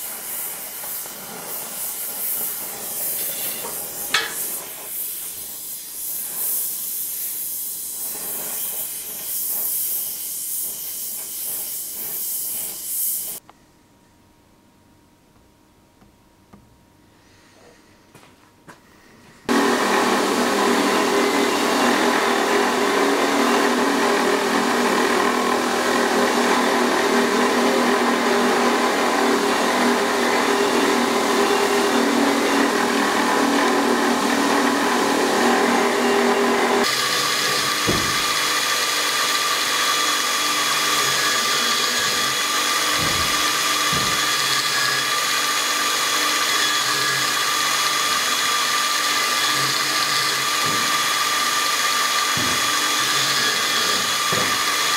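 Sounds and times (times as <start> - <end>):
belt grinder grinding steel: 0.7 - 5.0, 19.5 - 54.9.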